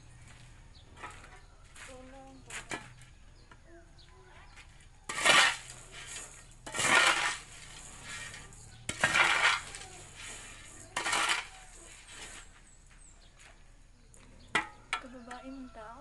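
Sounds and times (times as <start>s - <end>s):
corn kernels scraped across concrete: 0.2s - 3.2s, 4.6s - 13.6s.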